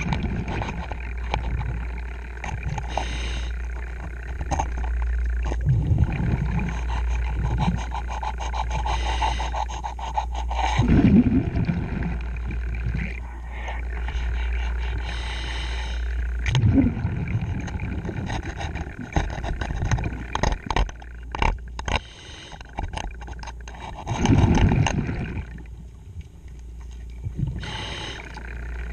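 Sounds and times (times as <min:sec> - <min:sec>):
exhaled bubbles rumbling: 0:00.0 - 0:21.8, 0:22.9 - 0:28.9
regulator inhale hiss: 0:02.9 - 0:03.6, 0:13.4 - 0:16.2, 0:22.0 - 0:22.7, 0:27.6 - 0:28.4.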